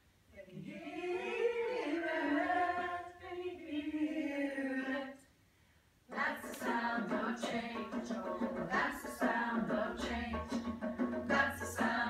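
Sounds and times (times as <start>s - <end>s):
women singing a chant: 0.4s - 5.3s, 6.1s - 12.0s.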